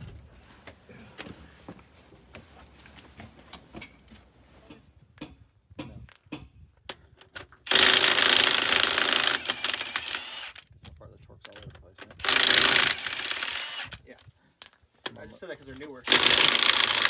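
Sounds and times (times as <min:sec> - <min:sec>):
impact wrench hammering: 0:07.7 - 0:10.6, 0:12.2 - 0:13.9, 0:16.1 - 0:17.0.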